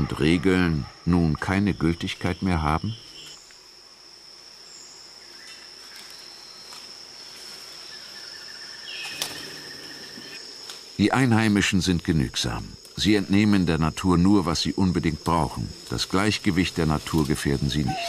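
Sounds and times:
high-pitched insect trill: 0:00.0 - 0:18.0
whistled bird calls: 0:17.8 - 0:18.0.

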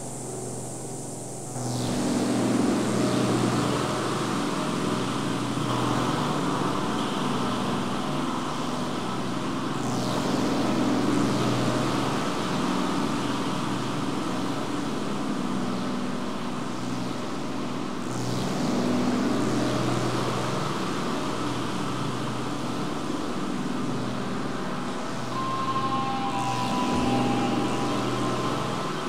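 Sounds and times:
dense noise wash: 0:00.0 - 0:09.8, 0:19.0 - 0:29.0
low hum tones: 0:22.7 - 0:29.0.

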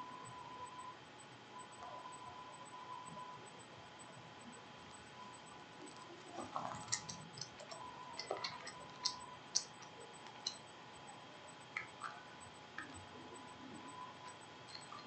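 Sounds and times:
faint steady hum: 0:00.0 - 0:15.0
small objects clicking and tapping: 0:06.6 - 0:10.7, 0:11.7 - 0:12.2, 0:14.7 - 0:15.0.

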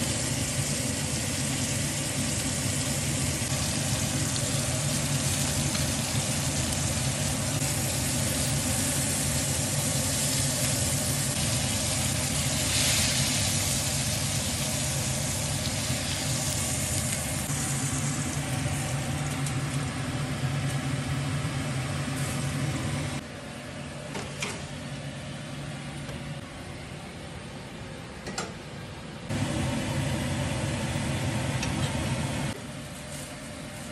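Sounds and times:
steaks sizzling in skillet: 0:00.0 - 0:19.6.

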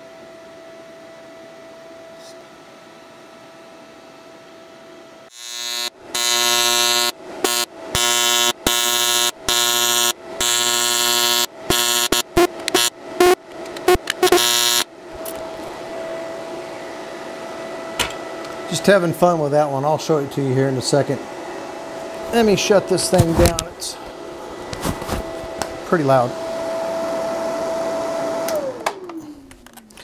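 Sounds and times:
faint steady hum: 0:00.0 - 0:26.5
welding arc buzzing: 0:05.3 - 0:15.7.

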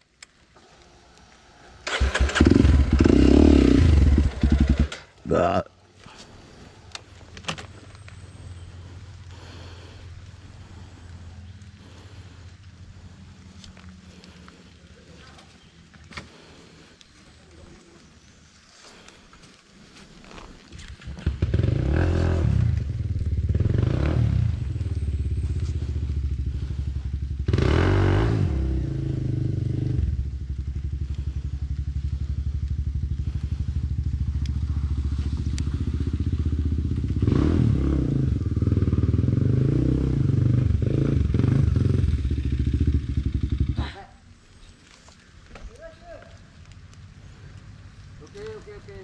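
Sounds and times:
motorcycle engine starting: 0:01.8 - 0:05.5, 0:20.9 - 0:44.0
motorcycle engine idling and revving: 0:01.8 - 0:16.9, 0:19.9 - 0:44.6, 0:45.7 - 0:49.0.

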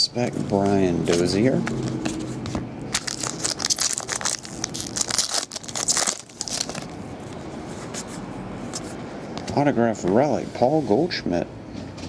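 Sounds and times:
foil wrapper crinkling and tearing: 0:02.9 - 0:07.0.

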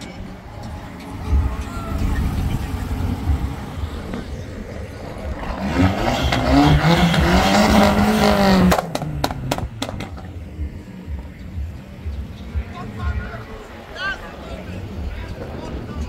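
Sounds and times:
car engine revving: 0:00.0 - 0:16.0
sharp exhaust pops: 0:05.3 - 0:10.4.

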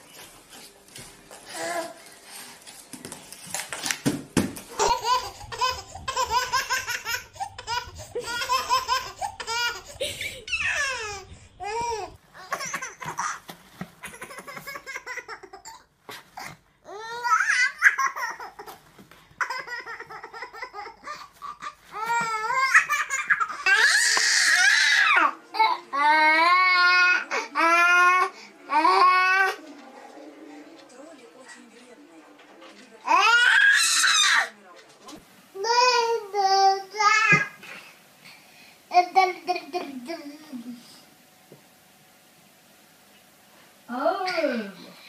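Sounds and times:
baby giggling and squealing: 0:04.7 - 0:13.4.

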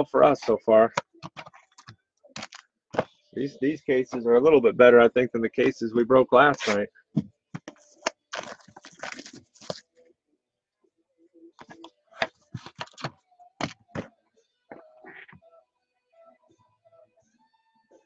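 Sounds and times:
card packs tapping and rustling: 0:00.9 - 0:03.1, 0:06.6 - 0:09.8, 0:11.6 - 0:14.1.

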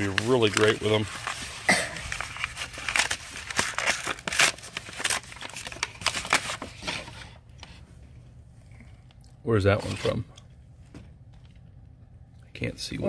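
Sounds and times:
paper crinkling and tearing: 0:00.0 - 0:07.7, 0:09.7 - 0:10.3.

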